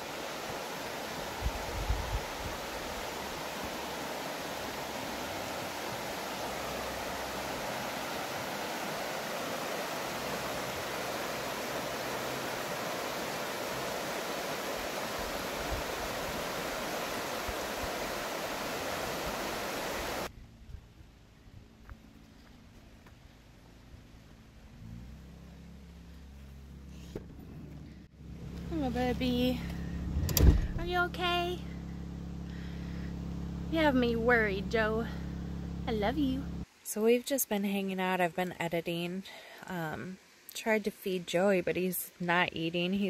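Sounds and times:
river rushing over rocks: 0.0 - 20.3.

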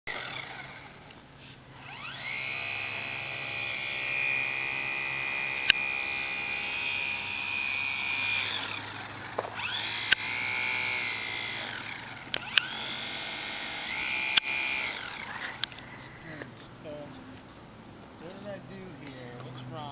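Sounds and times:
model plane motor whining: 0.1 - 16.2
sharp clicks: 9.3 - 10.3, 11.9 - 12.8, 13.9 - 16.2.

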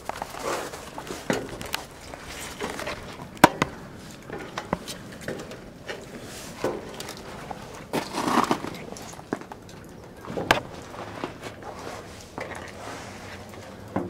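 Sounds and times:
boots on metal steps: 10.2 - 12.1
clothing rustling: 10.2 - 13.7.

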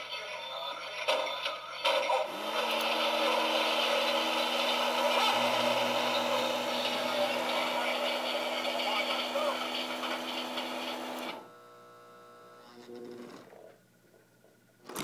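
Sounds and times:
motor hum: 2.2 - 13.6.

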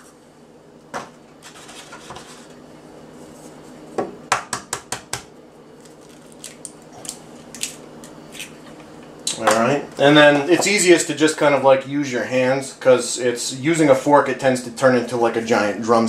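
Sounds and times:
eggs cracking over glass bowl: 5.8 - 8.6.

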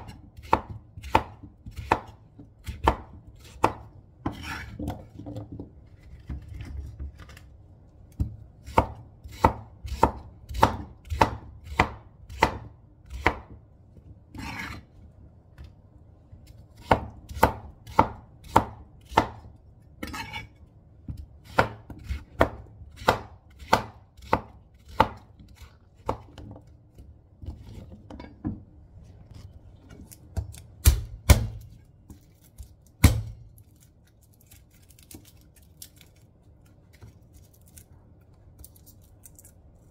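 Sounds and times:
knife chopping on cutting board: 0.0 - 5.1, 8.6 - 13.6, 14.4 - 14.8, 16.8 - 20.5, 21.1 - 26.6, 30.3 - 31.7, 33.0 - 33.4.

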